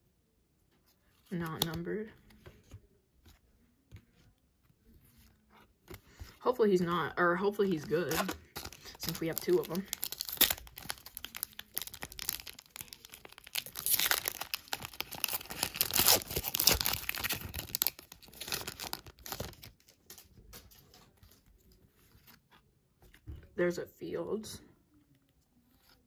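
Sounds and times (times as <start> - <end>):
cards rustling: 0.7 - 6.4, 7.6 - 23.2
foil wrapper tearing and crinkling: 7.8 - 20.3.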